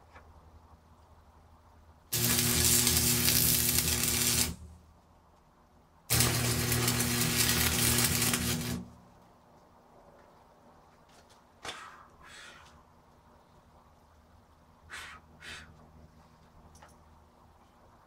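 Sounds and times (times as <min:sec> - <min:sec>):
electric arc welding hiss: 0:02.1 - 0:04.7, 0:06.1 - 0:09.0.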